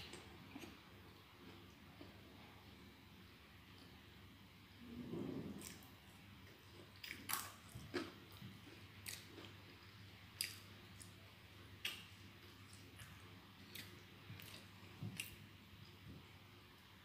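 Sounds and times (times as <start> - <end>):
person chewing fries: 0.0 - 2.2, 6.5 - 16.0.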